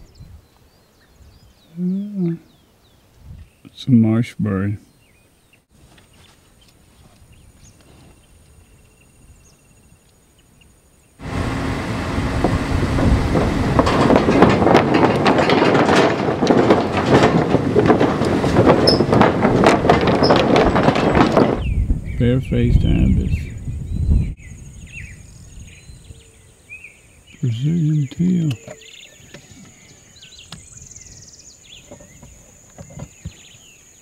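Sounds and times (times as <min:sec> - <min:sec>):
wooden bridge planks clattering: 0:11.2 - 0:23.3.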